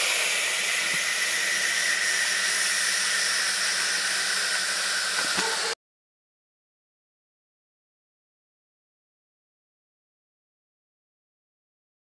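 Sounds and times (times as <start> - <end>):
rocket motor hissing: 0.0 - 5.8.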